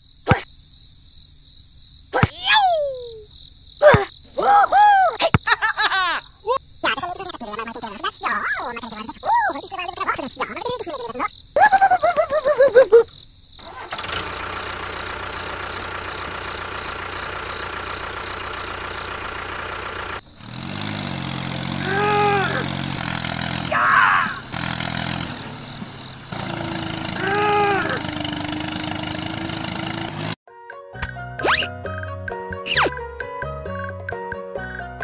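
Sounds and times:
falling chirps: 2.1s - 6.6s, 31.4s - 31.8s, 32.6s - 33.1s
engine running: 13.6s - 30.4s
low engine hum: 13.7s - 30.4s.

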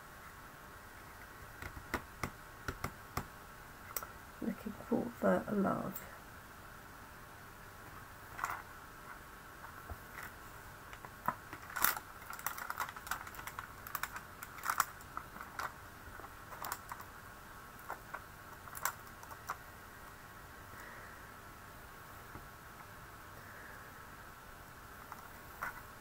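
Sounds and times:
plastic clicks and crackles: 10.1s - 17.1s, 17.8s - 19.6s.

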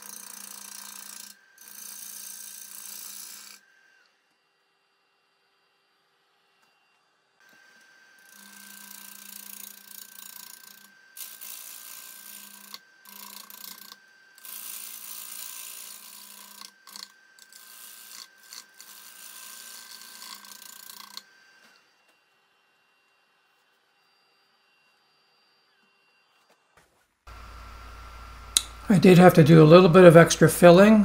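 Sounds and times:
lathe motor hum and whine: 0.0s - 31.0s
gouge cutting wood hissing: 7.4s - 21.8s.

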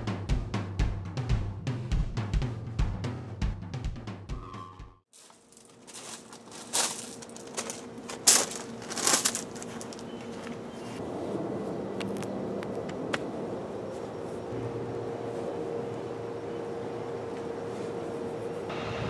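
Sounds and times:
drumming music: 0.0s - 5.0s
crunching and rustling: 5.1s - 11.0s
faint steady hum: 5.2s - 19.0s.

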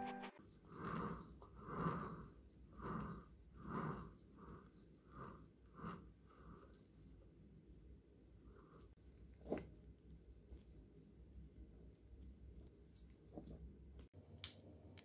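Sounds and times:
soft swishing icing strokes: 0.0s - 7.2s.

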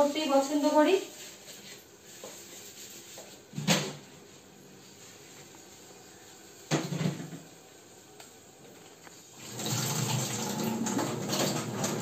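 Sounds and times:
dishes scrubbed in metal sink: 9.6s - 12.0s.

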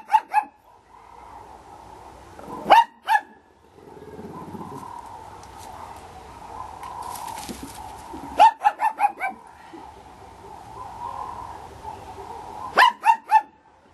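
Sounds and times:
small dog yipping: 0.0s - 0.6s, 8.3s - 9.4s, 12.7s - 13.6s.

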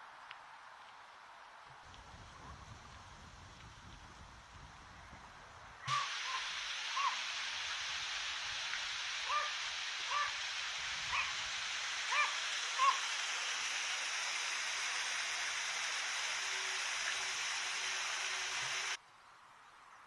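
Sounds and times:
water rushing through lock gates: 5.8s - 19.0s
small dog barking: 9.3s - 10.4s, 11.1s - 11.4s, 12.1s - 13.0s.

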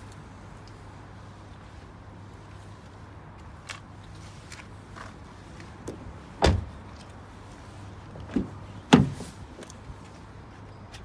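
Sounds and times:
car door thuds: 6.4s - 6.8s, 8.3s - 9.2s.

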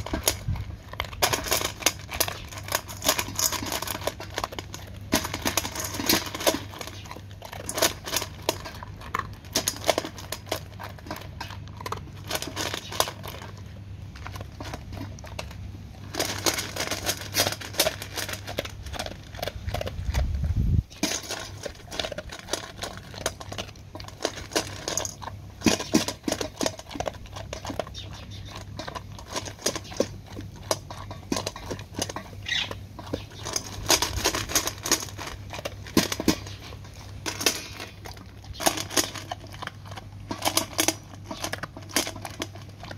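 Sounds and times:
dog crunching dry kibble: 0.0s - 42.9s.

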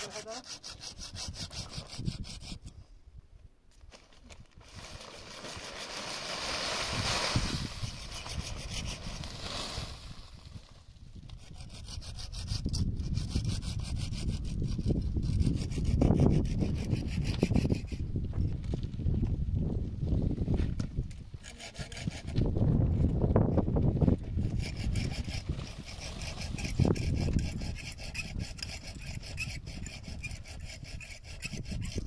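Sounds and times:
hand tool scraping: 0.0s - 2.8s, 4.6s - 10.4s, 11.2s - 18.0s, 21.1s - 22.4s, 24.4s - 32.0s.

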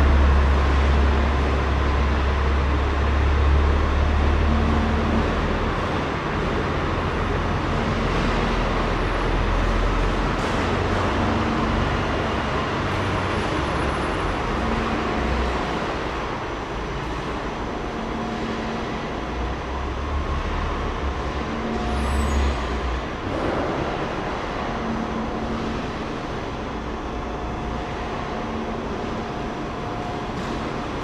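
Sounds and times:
vehicle engine rumbling: 0.0s - 31.0s
brief high squeal: 21.8s - 22.9s.

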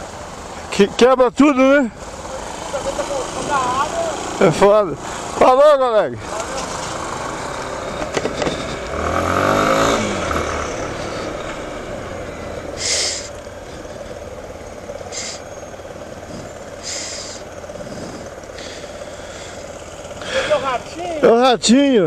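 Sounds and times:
motorcycle engine revving: 0.0s - 21.6s
short hisses: 12.7s - 14.1s, 15.0s - 15.5s, 16.2s - 20.6s.

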